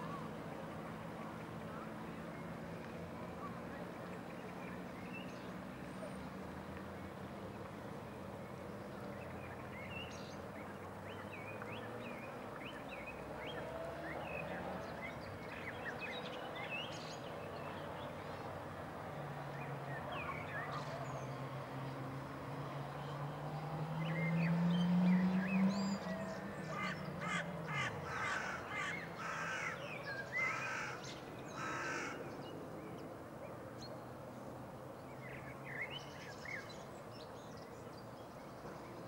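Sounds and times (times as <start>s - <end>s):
low engine hum: 0.0s - 29.1s
songbirds chirping: 0.0s - 39.0s.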